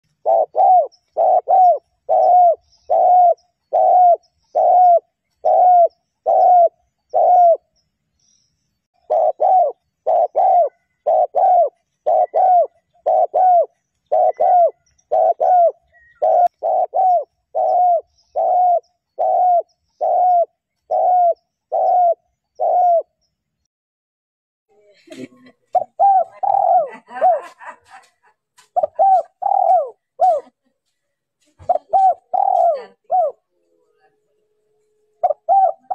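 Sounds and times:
dove cooing: 0:00.1 - 0:07.7, 0:09.0 - 0:23.2, 0:25.7 - 0:27.6, 0:28.8 - 0:30.5, 0:31.6 - 0:33.5, 0:35.2 - 0:35.9.

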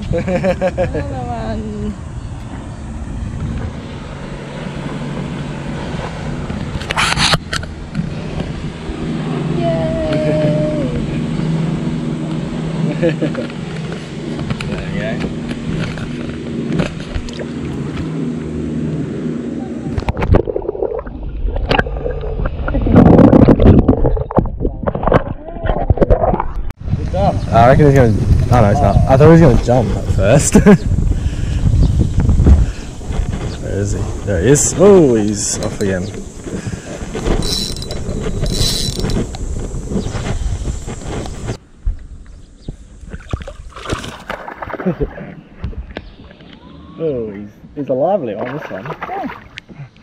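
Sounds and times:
boat motor humming: 0:00.0 - 0:24.6, 0:29.0 - 0:47.7
sharp knocks and splashes: 0:13.5 - 0:18.2, 0:19.9 - 0:26.7, 0:43.0 - 0:46.6, 0:48.3 - 0:49.7
water sloshing and gurgling: 0:13.5 - 0:18.9, 0:19.9 - 0:26.8, 0:43.0 - 0:46.7, 0:48.3 - 0:50.0.

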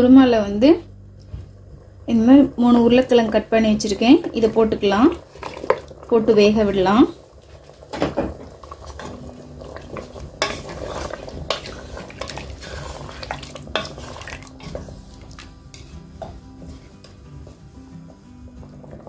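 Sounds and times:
spoon scraping through curry: 0:10.4 - 0:17.1.

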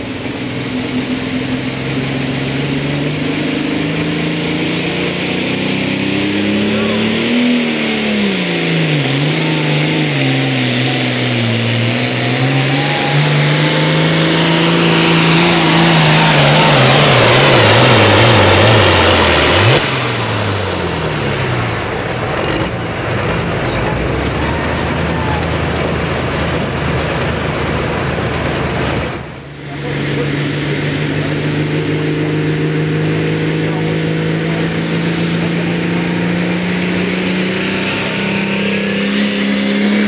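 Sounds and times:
tractor diesel engine at full throttle: 0:00.0 - 0:40.0.

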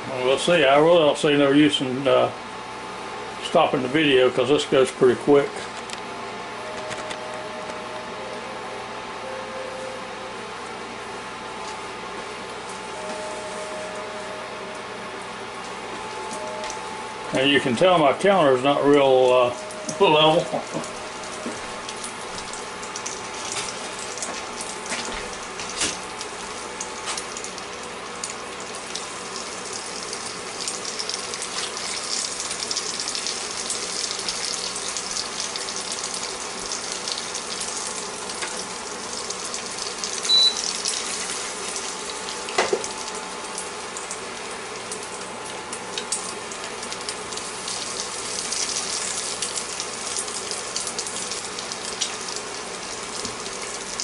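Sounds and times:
egg sizzling in butter: 0:20.4 - 0:44.3, 0:46.0 - 0:54.0.

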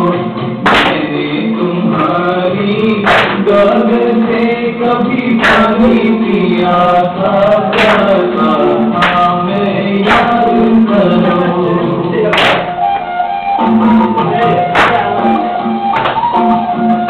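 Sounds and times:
person singing long notes: 0:00.0 - 0:17.0
sharp percussive hit: 0:00.6 - 0:01.2, 0:03.0 - 0:03.6, 0:05.4 - 0:05.8, 0:07.7 - 0:08.3, 0:09.0 - 0:09.4, 0:10.0 - 0:10.7, 0:12.3 - 0:12.8, 0:14.7 - 0:15.2.

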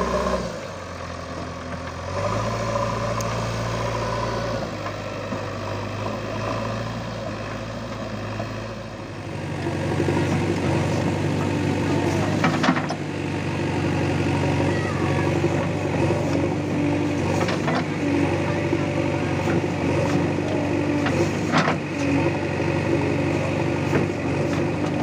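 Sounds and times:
diesel engine under load: 0:00.0 - 0:25.0.

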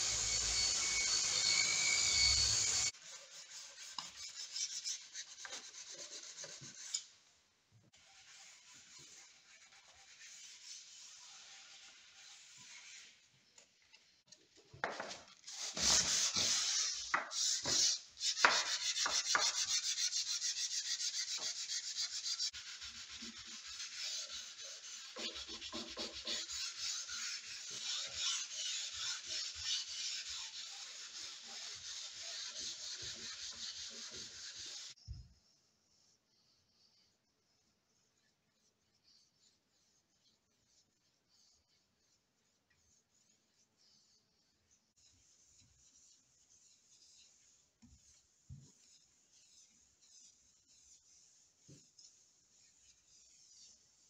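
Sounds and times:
hand sanding wood: 0:00.0 - 0:06.9, 0:08.0 - 0:13.2, 0:15.5 - 0:35.0, 0:40.7 - 0:54.0.

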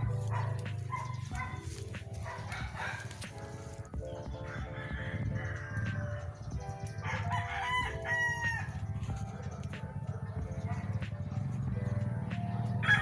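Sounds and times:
rooster crowing: 0:04.4 - 0:08.9, 0:12.8 - 0:13.0.

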